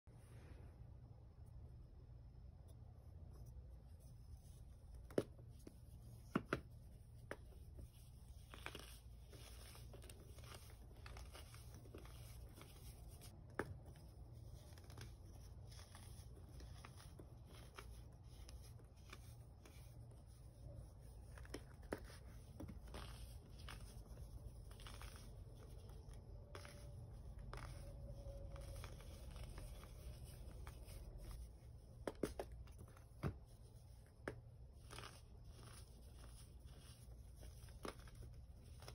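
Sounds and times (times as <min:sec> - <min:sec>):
baking soda crumbling and crunching: 0:21.3 - 0:26.8, 0:34.8 - 0:38.9.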